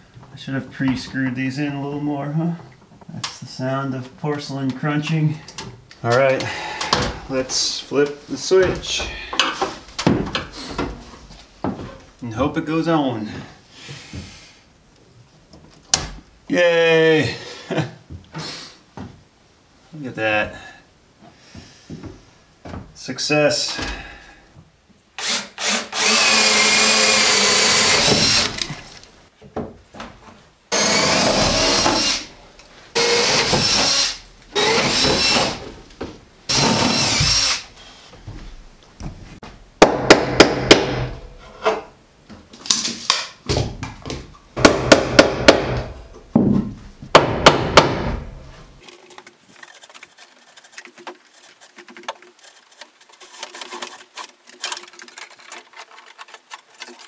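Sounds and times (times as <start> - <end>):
power drill running: 25.2 - 28.7, 30.7 - 32.3, 33.0 - 35.6, 36.5 - 37.6
sharp knocks: 39.8 - 41.2, 43.5 - 48.5.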